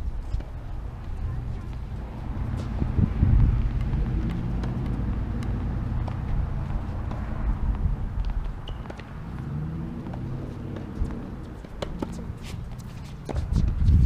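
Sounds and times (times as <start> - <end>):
ball bouncing on hard court: 3.5 - 13.8
racket hitting tennis ball: 3.6 - 7.4, 8.6 - 9.2, 10.0 - 13.5.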